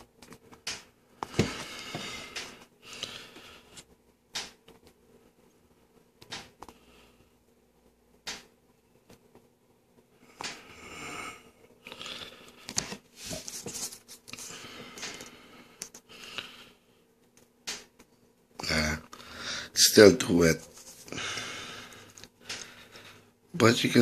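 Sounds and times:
rustling and scraping handling noises: 0:12.6 - 0:16.1, 0:20.3 - 0:21.1.

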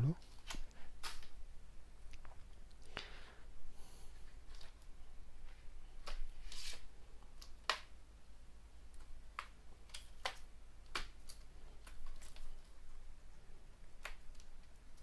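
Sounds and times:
wires rustling: 0:00.0 - 0:15.0.

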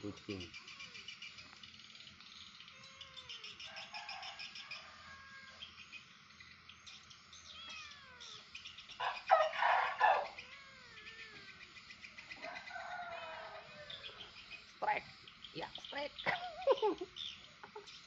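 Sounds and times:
cat meowing: 0:02.7 - 0:03.6, 0:07.4 - 0:08.4, 0:09.8 - 0:11.5.

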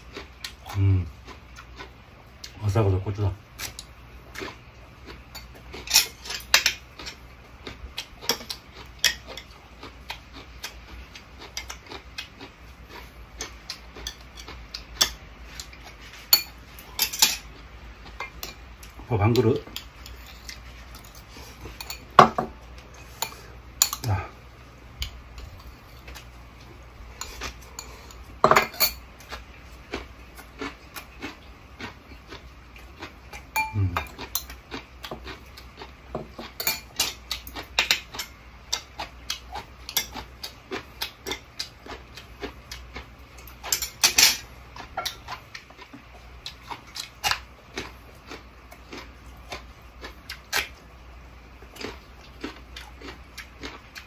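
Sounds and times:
cutlery clinking on ceramic bowls: 0:27.2 - 0:29.0, 0:33.6 - 0:34.5, 0:36.2 - 0:37.2, 0:43.6 - 0:45.2.

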